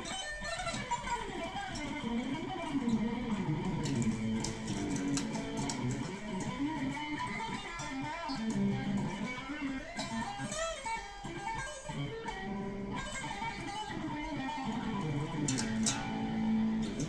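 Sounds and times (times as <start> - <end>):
electric guitar solo: 0.0 - 17.0.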